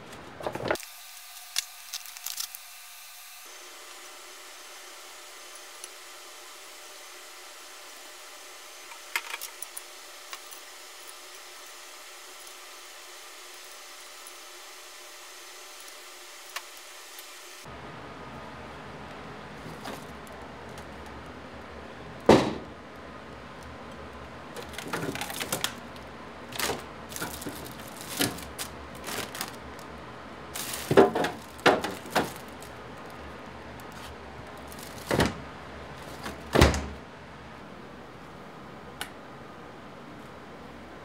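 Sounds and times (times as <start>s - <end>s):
objects knocking and clattering: 30.7s - 32.5s.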